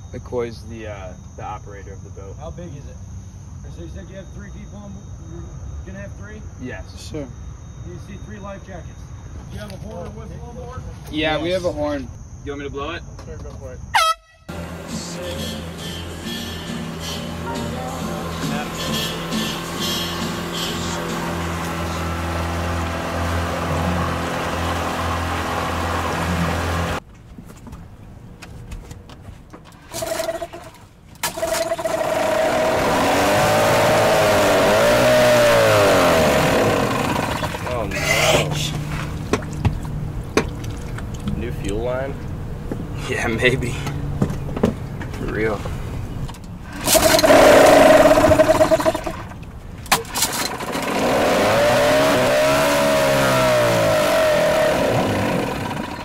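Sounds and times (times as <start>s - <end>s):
outboard motor running: 14.5s - 27.0s, 29.9s - 41.4s, 46.8s - 56.0s.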